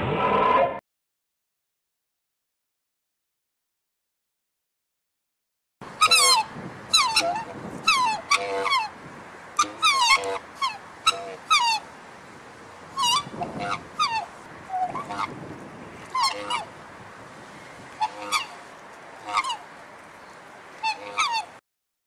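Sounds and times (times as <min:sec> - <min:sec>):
black swan honking calls: 0:06.0 - 0:09.0, 0:09.6 - 0:11.8, 0:13.0 - 0:15.4, 0:16.1 - 0:16.7, 0:18.0 - 0:18.6, 0:19.2 - 0:19.7, 0:20.8 - 0:21.6.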